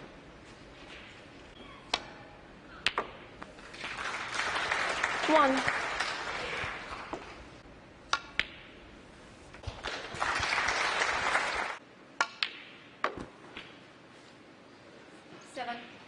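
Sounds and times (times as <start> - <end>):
snooker balls clicking: 2.8 - 3.5, 8.1 - 8.8
audience applause: 3.6 - 7.4, 9.6 - 11.8.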